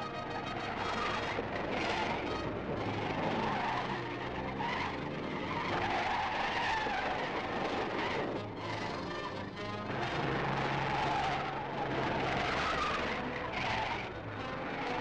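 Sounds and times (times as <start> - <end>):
car tyres squealing: 0.0 - 15.0
car engine running: 0.3 - 15.0.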